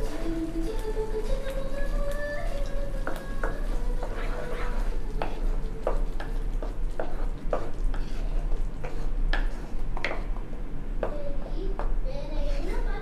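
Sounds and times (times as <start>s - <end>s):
wooden spatula scraping pan: 3.0s - 9.8s.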